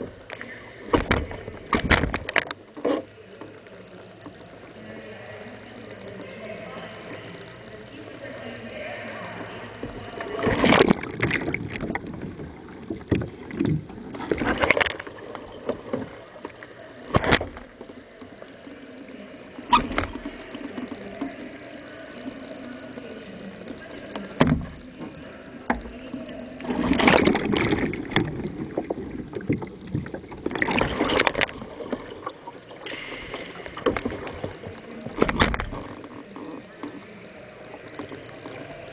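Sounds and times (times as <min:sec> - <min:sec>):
water splashing around kayak: 0:09.5 - 0:38.9
paddle stroke splashes: 0:09.7 - 0:38.9.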